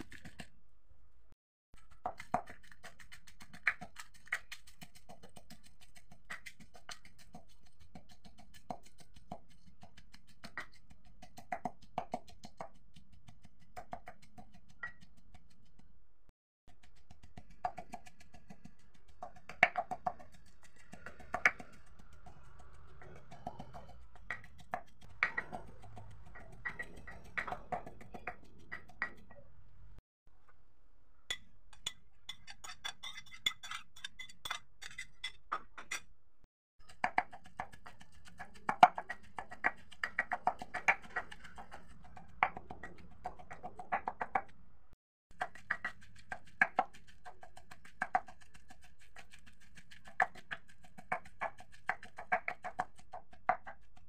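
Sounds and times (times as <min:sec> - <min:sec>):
pestle pounding in a mortar: 0:45.3 - 0:53.9.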